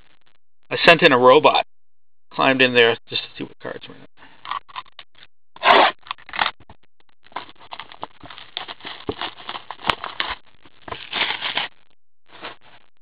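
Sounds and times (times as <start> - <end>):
plastic shrink-wrap crinkling and tearing: 7.3 - 11.7.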